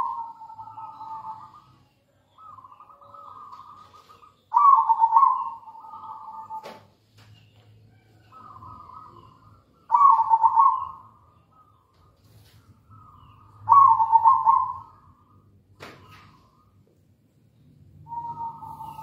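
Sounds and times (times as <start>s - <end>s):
dove cooing: 0.0s - 1.8s, 2.4s - 6.8s, 8.2s - 11.2s, 13.6s - 15.1s.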